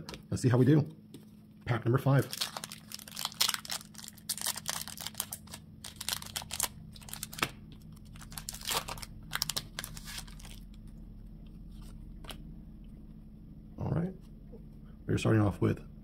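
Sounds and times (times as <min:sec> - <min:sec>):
foil wrapper tearing and crinkling: 0:02.2 - 0:10.8.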